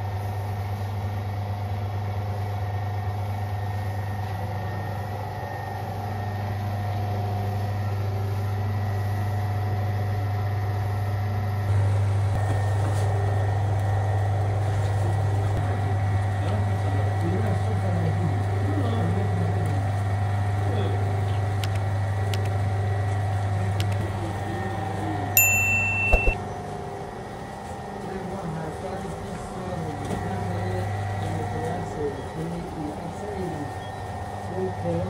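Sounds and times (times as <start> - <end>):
electric dough mixer humming: 0.0 - 28.1.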